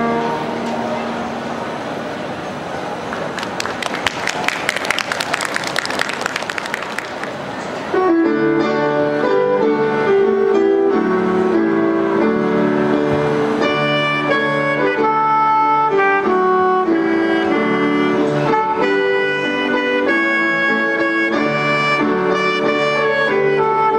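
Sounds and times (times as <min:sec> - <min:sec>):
alto saxophone melody: 0:00.0 - 0:00.8, 0:07.9 - 0:23.9
applause: 0:03.1 - 0:07.6.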